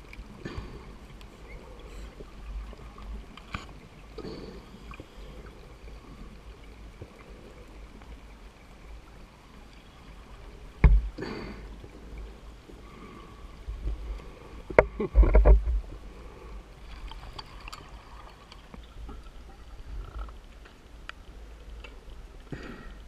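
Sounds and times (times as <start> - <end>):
low underwater rumble: 0.0 - 22.6
underwater bubbles gurgling: 0.0 - 23.0
faint clicks: 0.1 - 3.7, 17.0 - 22.6.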